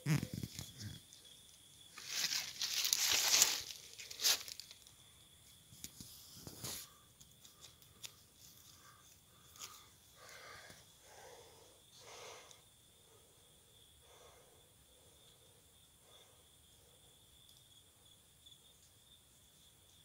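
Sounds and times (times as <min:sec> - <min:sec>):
rustling and tearing: 0:02.0 - 0:04.7.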